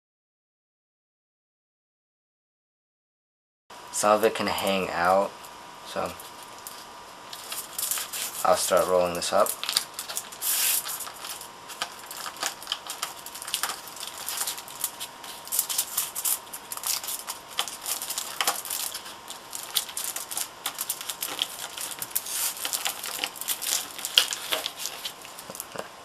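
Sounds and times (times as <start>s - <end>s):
aluminium foil crinkling: 6.0s - 25.8s.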